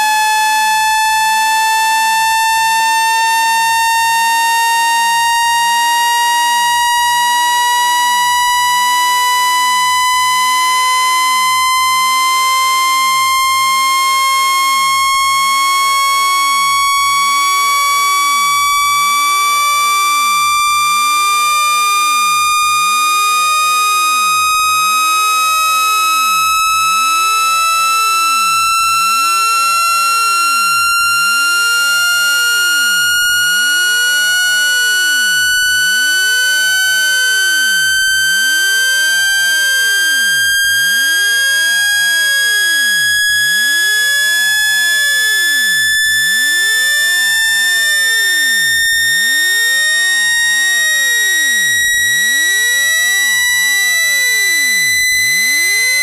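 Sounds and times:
electronic tone rising in pitch: 26.2 - 56.0.

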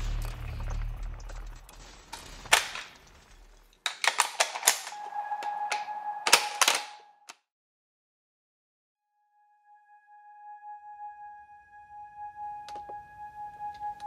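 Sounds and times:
gunshots: 0.0 - 4.9
low music drone: 4.6 - 7.2, 9.2 - 14.0.

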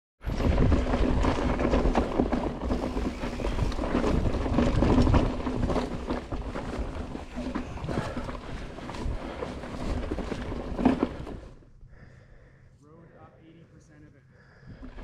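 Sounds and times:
wind rumbling on microphone: 0.2 - 11.4
bike knocks and rattles: 0.2 - 11.6
tyres rolling over rock: 0.2 - 11.6.

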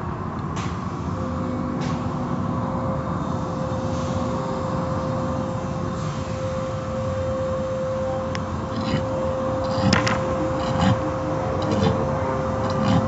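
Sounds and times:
constant hum: 0.0 - 13.0
water spray and machinery rumble: 3.1 - 13.0.

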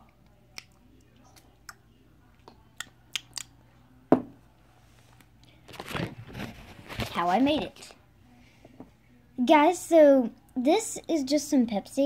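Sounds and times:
sharp knock on plastic cup: 4.1 - 4.4.

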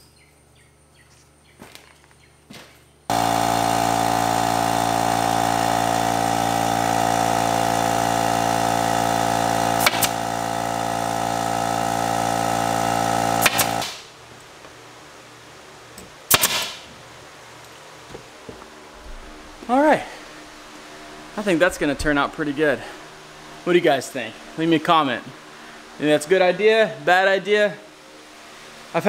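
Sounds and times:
air compressor motor running: 3.1 - 14.2, 18.2 - 27.0
nail gun shots: 9.7 - 10.4, 13.3 - 14.1, 16.3 - 16.9.

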